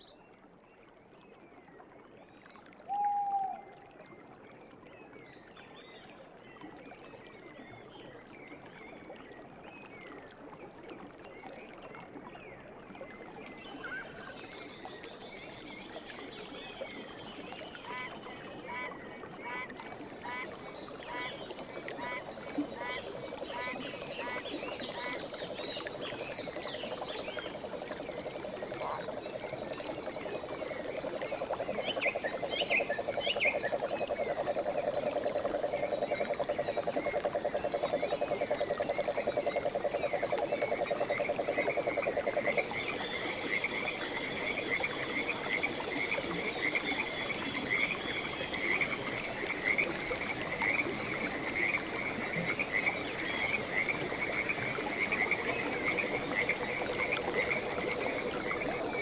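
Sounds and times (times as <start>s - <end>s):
frog high-pitched calls: 13.6s - 14.4s.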